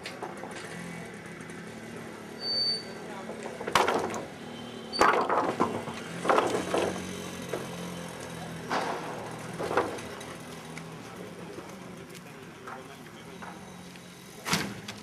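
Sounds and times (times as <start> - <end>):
loud sudden clatters: 5.0 - 7.7.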